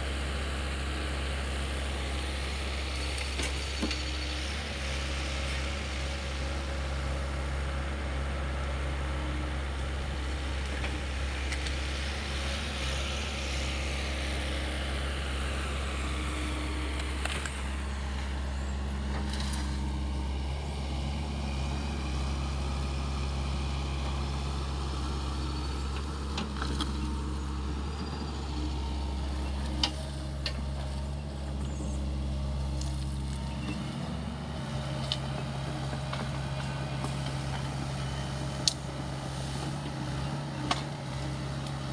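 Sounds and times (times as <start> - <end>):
excavator diesel engine droning: 0.0 - 41.9.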